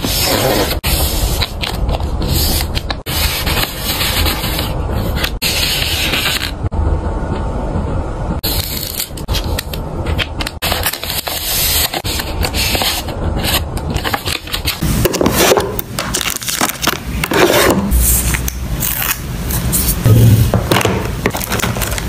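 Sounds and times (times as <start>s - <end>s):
plastic packaging crinkling: 16.0s - 17.1s, 21.3s - 22.0s.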